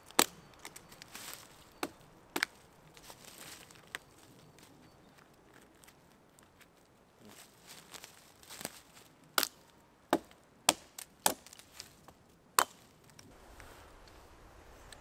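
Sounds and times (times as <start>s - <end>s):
hatchet chopping into log: 9.4s - 11.6s.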